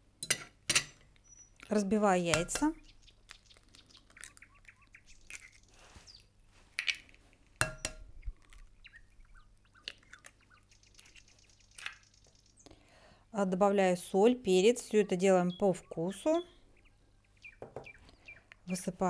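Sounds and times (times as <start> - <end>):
eggshells cracking on glass bowl: 0.8 - 5.7, 6.8 - 12.4.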